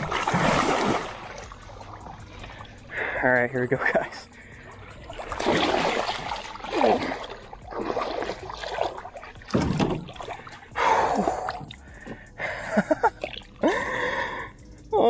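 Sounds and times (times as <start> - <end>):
fish thrashing at surface: 0.0 - 1.5, 5.1 - 10.7
water splashing: 0.0 - 13.8.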